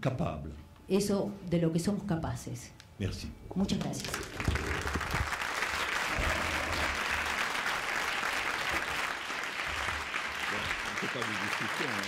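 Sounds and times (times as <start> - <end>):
audience applauding: 3.8 - 12.0.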